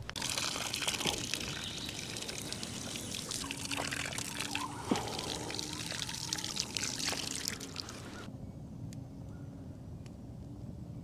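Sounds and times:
water pouring and trickling: 0.0s - 8.3s.

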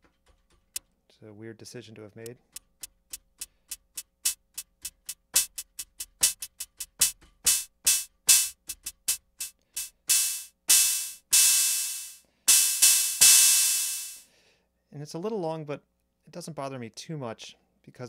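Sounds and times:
drum machine hi-hat pattern: 2.3s - 14.3s.

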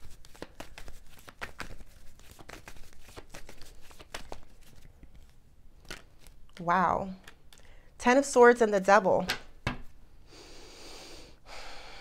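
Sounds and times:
cards being shuffled: 0.0s - 7.7s.

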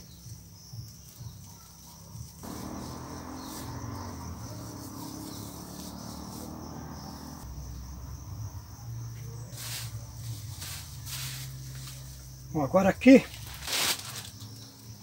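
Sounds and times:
insects trilling: 0.0s - 15.0s
plastic tape rustling: 13.2s - 14.6s.

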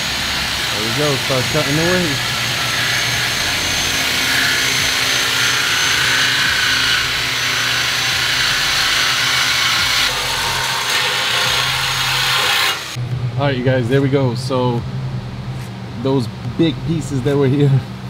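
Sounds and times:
power tool cutting exhaust pipe: 0.0s - 13.0s.

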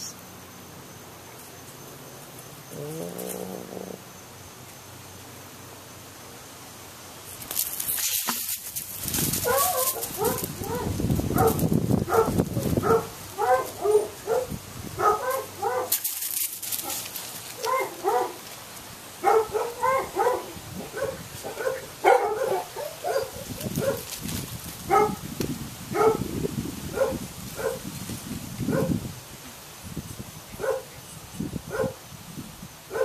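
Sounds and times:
puppies yipping: 9.4s - 16.0s, 16.8s - 18.4s.

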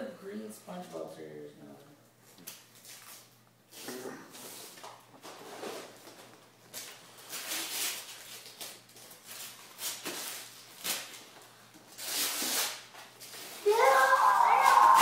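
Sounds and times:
wrapping paper rustling and tearing: 5.4s - 11.3s, 11.9s - 15.0s.

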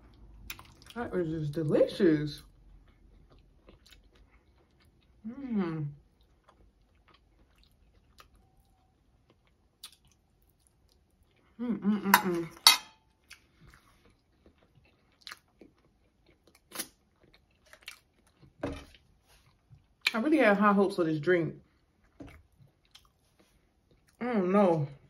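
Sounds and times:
person chewing food: 0.0s - 1.0s, 2.4s - 5.2s, 6.0s - 20.1s, 21.6s - 24.2s
fork clinking on plate: 12.2s - 13.0s.

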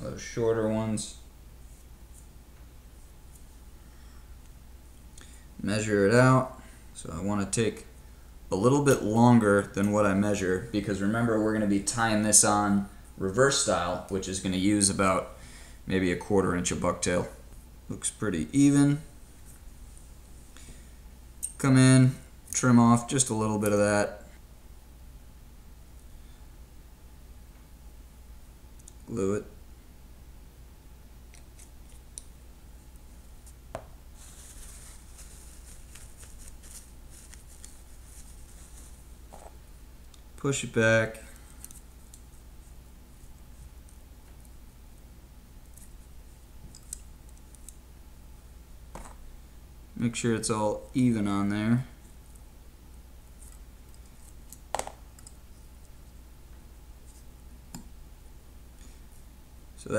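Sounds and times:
low steady hum: 0.0s - 59.9s
soft rustling and small ticks: 34.2s - 40.4s, 41.2s - 47.8s, 52.0s - 57.9s.

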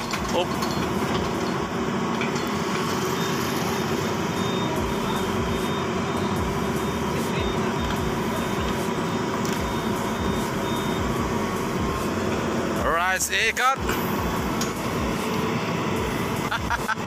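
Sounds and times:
diesel engine running steadily: 0.0s - 17.0s.

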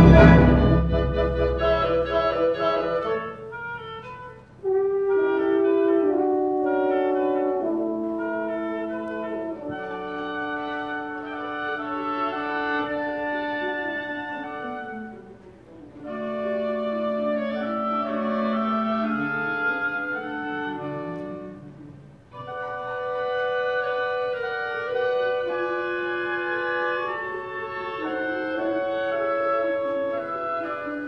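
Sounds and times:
orchestra strings playing slow phrases: 0.0s - 3.2s, 4.8s - 23.2s.

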